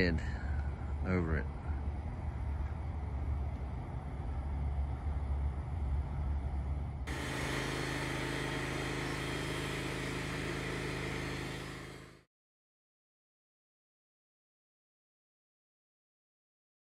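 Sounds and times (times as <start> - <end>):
sawmill engine running: 0.0 - 12.3
band blade sawing timber: 7.1 - 12.2.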